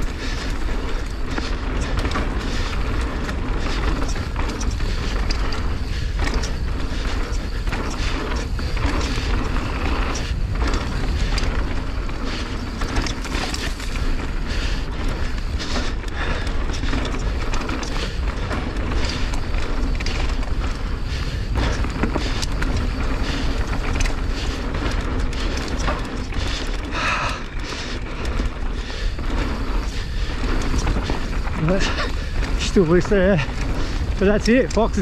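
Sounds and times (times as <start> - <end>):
wind rushing on microphone: 0.0 - 26.3
bike knocking and rattling: 0.0 - 35.0
tyres running over dirt: 0.0 - 35.0.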